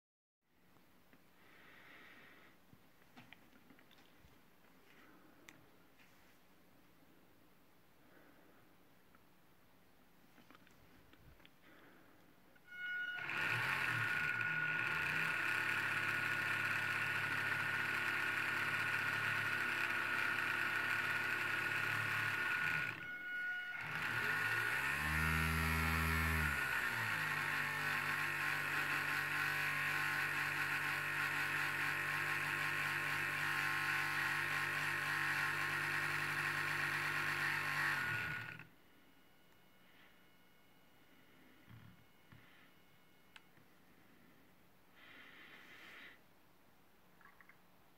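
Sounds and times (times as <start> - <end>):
electric motor whining: 12.6 - 40.4, 41.1 - 44.1.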